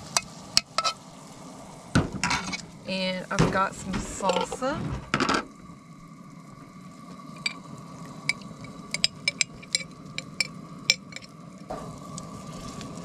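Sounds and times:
meat sizzling in a pan: 0.0 - 3.0
utensil scraping a pan: 0.6 - 1.0, 2.2 - 2.7.

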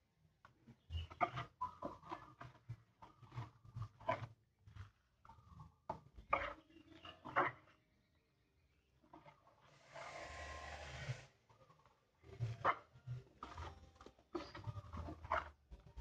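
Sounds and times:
spatula scraping a bowl: 9.7 - 11.3.

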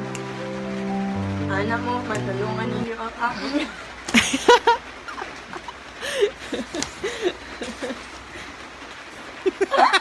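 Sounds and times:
person laughing: 3.3 - 8.2, 9.4 - 10.0.

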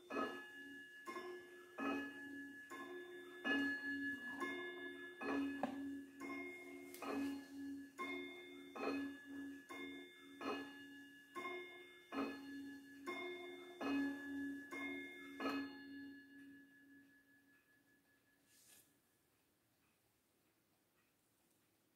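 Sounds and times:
mantel clock chiming: 0.0 - 21.2.

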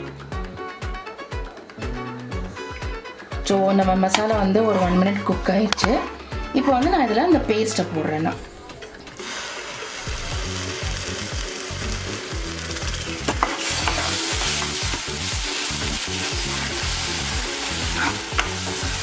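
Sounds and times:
paste sizzling in hot butter: 9.2 - 19.0.

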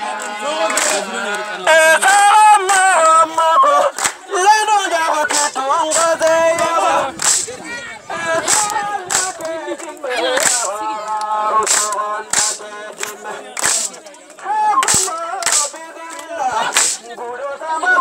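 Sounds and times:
voices singing and calling: 0.0 - 18.0
sharp cracks: 5.3 - 7.6, 11.7 - 12.6, 13.6 - 14.0, 14.8 - 15.8, 16.7 - 17.1.

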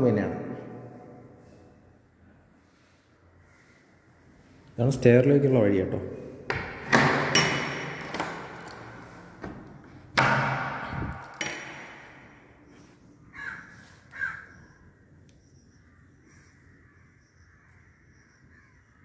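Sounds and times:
wooden door knocking and clunking: 6.5 - 8.6
crow cawing: 13.3 - 14.8, 16.2 - 19.0.

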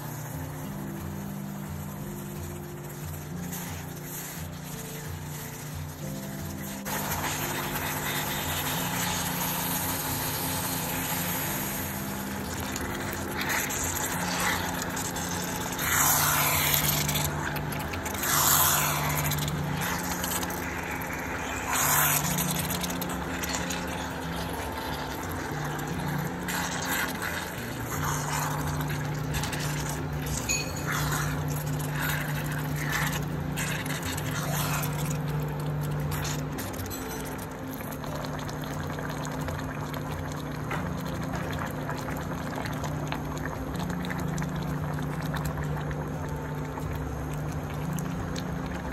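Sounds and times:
meat sizzling in a pan: 0.0 - 37.4.

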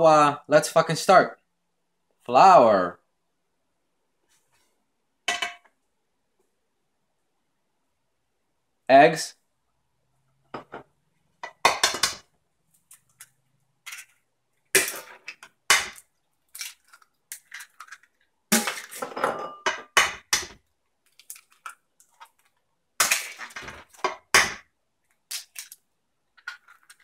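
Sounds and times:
eggs cracking on metal bowl: 11.4 - 12.3, 14.7 - 27.0.

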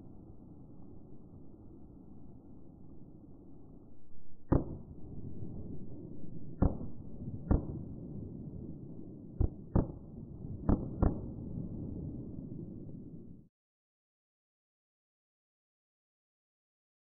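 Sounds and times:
firework pops and crackling: 4.4 - 8.0, 9.4 - 11.5.

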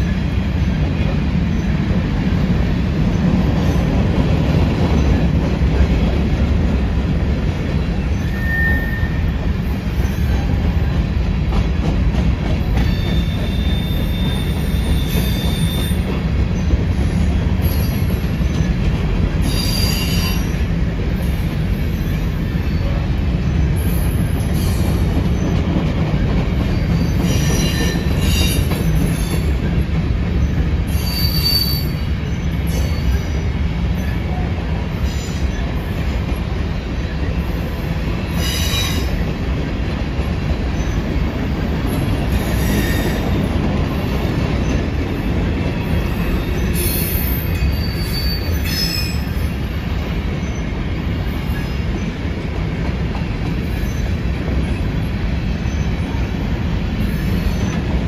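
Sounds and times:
train wheels rumbling on rail: 0.0 - 58.0
high wheel squeals: 8.0 - 10.6, 12.8 - 16.1, 19.4 - 20.6, 30.4 - 33.4, 46.2 - 49.5.

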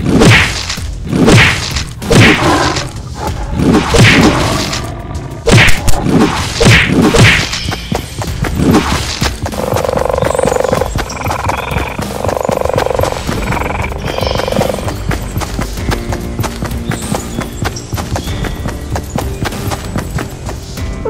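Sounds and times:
cartoon fight thuds and whacks: 0.0 - 2.5, 3.6 - 4.4, 5.5 - 7.6.

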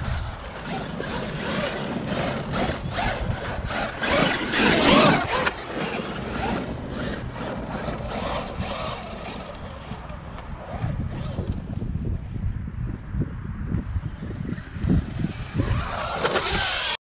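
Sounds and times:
radio-controlled truck motor: 0.0 - 11.7, 14.8 - 17.0
tyres on stony ground: 0.0 - 11.7, 15.3 - 17.0.

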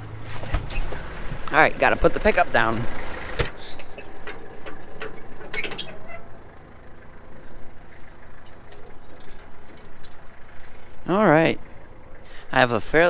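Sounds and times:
tractor engine idling: 0.0 - 13.0
metallic clinks: 8.4 - 10.2.

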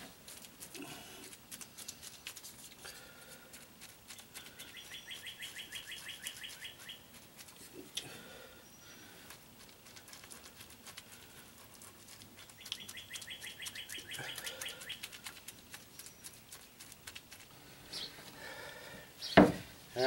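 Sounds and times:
brush dabbing on cloth: 0.0 - 8.0, 9.0 - 17.6
songbird chirping: 3.5 - 11.3, 12.1 - 20.0.

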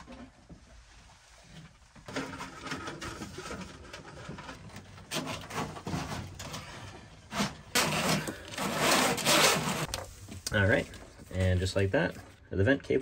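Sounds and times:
cables scraping through sheet metal: 5.1 - 9.9.

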